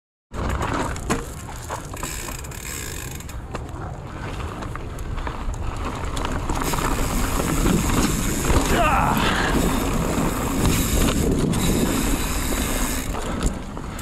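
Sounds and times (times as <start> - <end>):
tyres rumbling on dirt: 0.3 - 14.0
bike hub ratchet ticking: 2.0 - 3.4, 6.6 - 8.7, 9.6 - 14.0.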